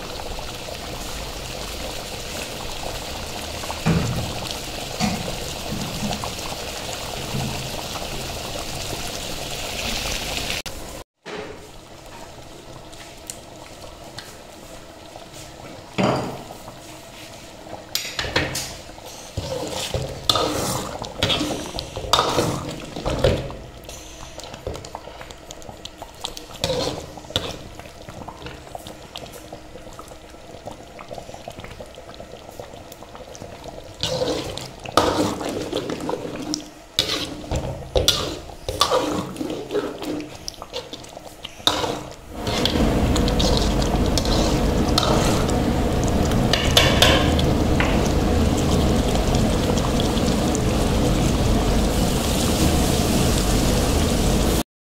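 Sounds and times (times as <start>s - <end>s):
gravy bubbling in a pan: 0.0s - 10.8s, 11.7s - 54.6s
spoon scraping a pan: 26.6s - 27.6s, 37.0s - 41.0s.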